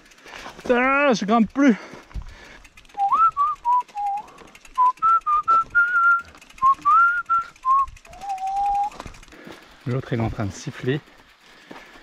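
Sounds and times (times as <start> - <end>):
man whistling a tune: 3.0 - 9.0.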